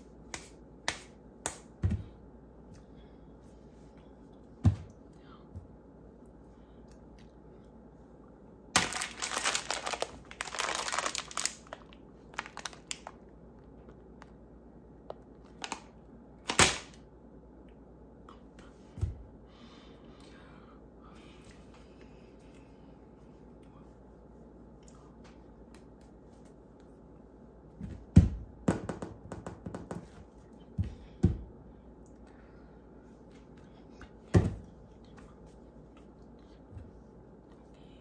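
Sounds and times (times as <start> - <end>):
plastic bag crinkling: 8.8 - 13.2.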